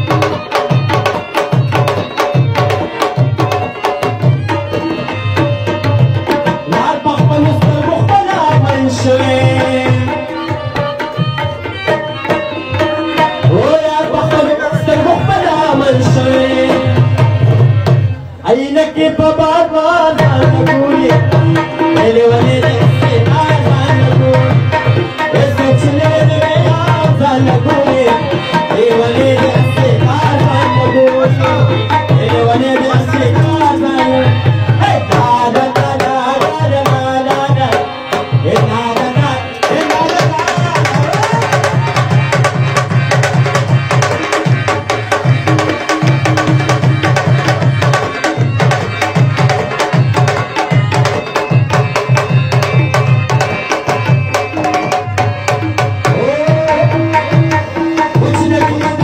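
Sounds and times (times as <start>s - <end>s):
hand drum rhythm: 0.0s - 18.1s, 20.2s - 59.0s
wavering melody: 20.2s - 59.0s.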